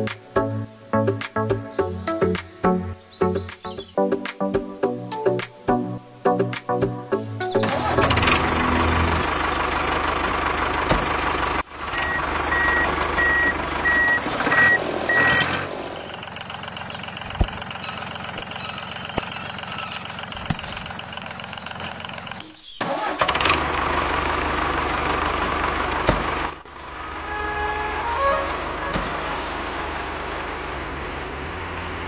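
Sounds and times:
vehicle engine rumble: 6.4 - 32.0
reversing alarm beeping: 11.9 - 15.6.

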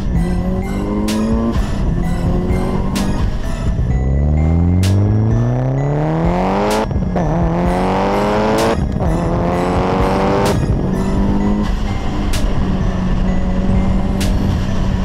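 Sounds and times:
car exhaust under hard acceleration: 0.0 - 15.0
music with sharp regular hits: 0.0 - 15.0.

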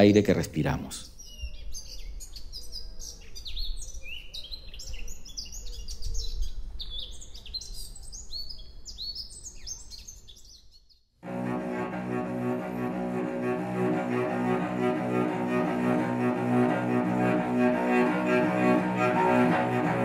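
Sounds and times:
bowed string music: 11.2 - 20.0.

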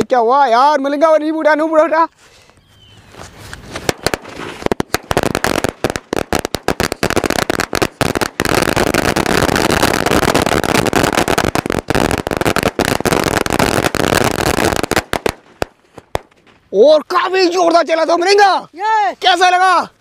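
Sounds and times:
firecrackers exploding: 3.5 - 16.7.

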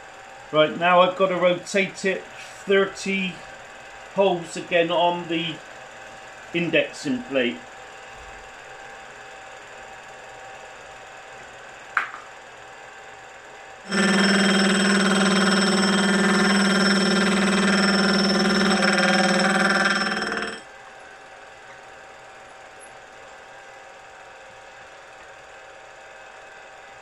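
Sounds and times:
faint milling machine hum: 12.5 - 26.9
gear cutter ringing on metal: 13.9 - 20.6.

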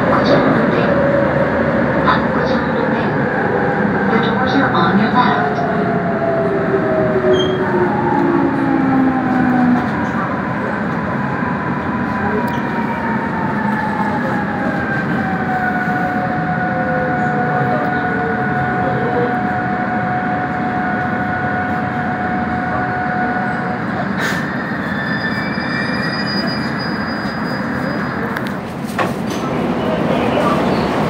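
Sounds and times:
train wheels rumbling on rails: 0.0 - 31.0
high brake squeal: 7.3 - 7.7, 24.0 - 28.3.

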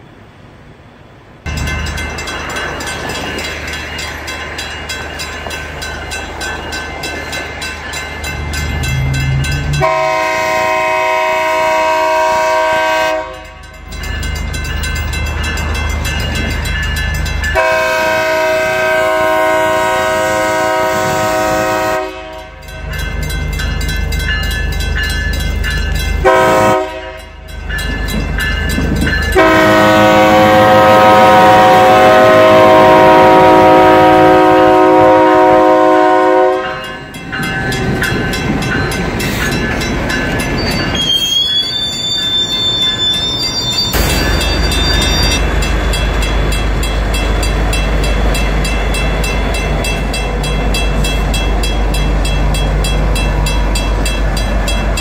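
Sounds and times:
locomotive engine running: 1.4 - 55.0
locomotive air horn blasts: 9.8 - 13.6, 17.6 - 22.6, 26.2 - 27.4, 29.4 - 36.9.

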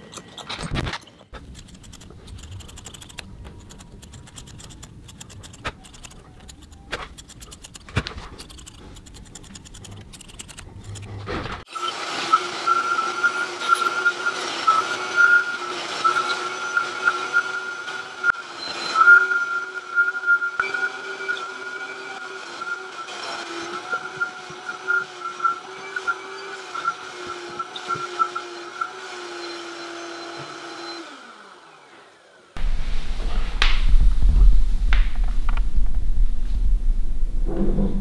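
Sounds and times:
hand tool scraping rug: 0.0 - 11.7
vacuum cleaner whining: 10.7 - 33.9.

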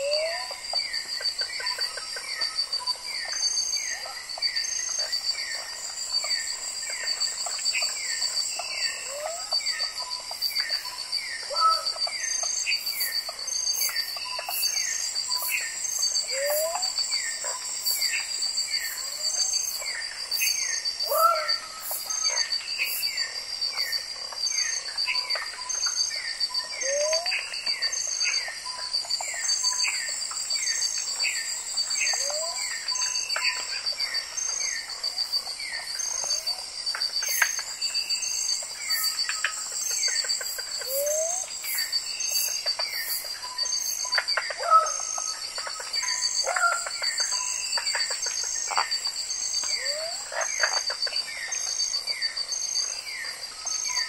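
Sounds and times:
high pulsing insect trill: 0.0 - 54.0
falling chirps: 38.9 - 42.5.

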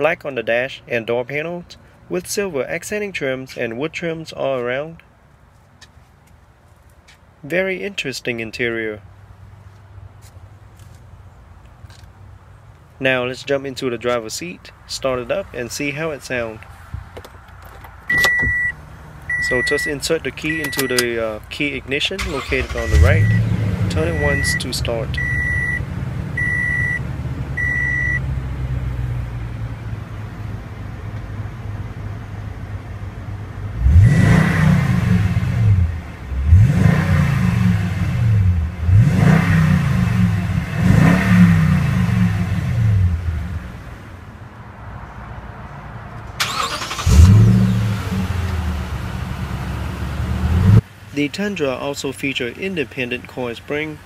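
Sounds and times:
car engine idling and revving: 17.0 - 21.1, 22.2 - 51.1
warning chime beeping: 18.1 - 21.1, 22.4 - 25.8, 26.4 - 27.0, 27.6 - 28.2.

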